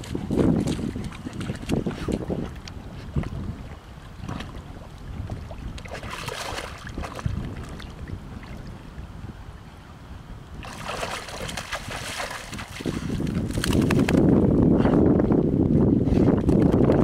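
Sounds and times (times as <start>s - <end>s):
wind rumbling on microphone: 0.0s - 17.0s
dog splashing in water: 5.3s - 7.8s, 10.6s - 14.3s.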